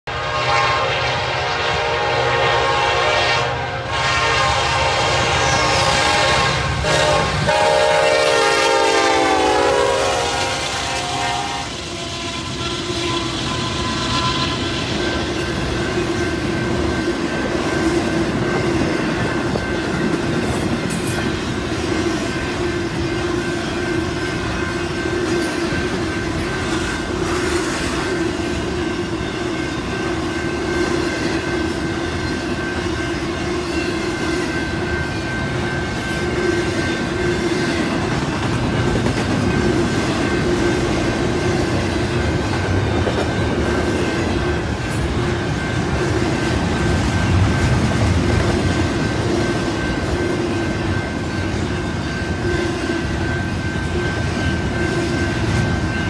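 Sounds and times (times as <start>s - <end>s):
freight train wheels rumbling on rail: 0.1s - 56.0s
steady ringing tone: 11.8s - 56.0s.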